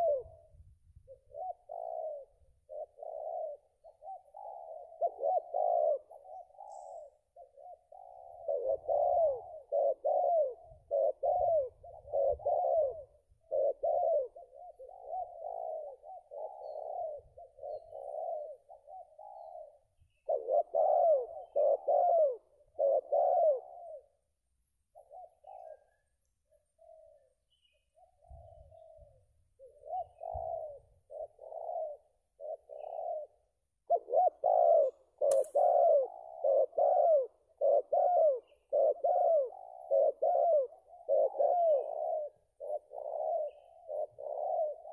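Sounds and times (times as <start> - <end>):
doves cooing: 0.0 - 44.9
sharp click: 35.3 - 35.6.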